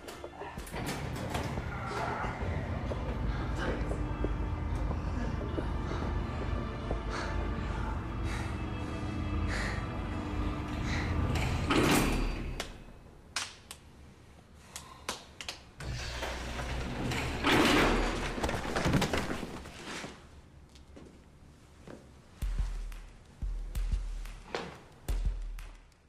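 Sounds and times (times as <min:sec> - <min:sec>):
steady music: 0:00.0 - 0:12.9, 0:22.4 - 0:26.0.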